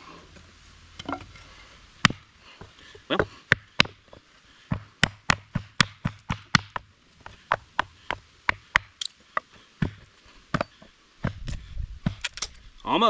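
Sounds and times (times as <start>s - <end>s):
hatchet chopping a branch: 2.0s - 2.3s, 3.5s - 4.0s, 4.7s - 12.5s.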